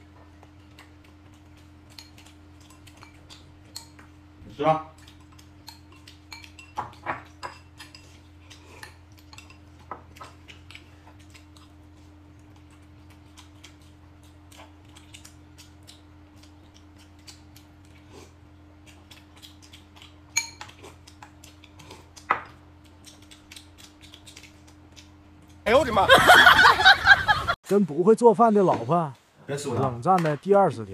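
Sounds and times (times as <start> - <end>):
utensils clinking against dishes: 5.3 - 9.8, 20.3 - 20.8.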